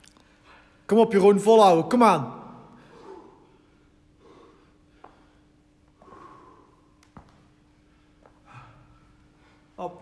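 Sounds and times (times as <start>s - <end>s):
heavy breaths out: 2.8s - 7.0s.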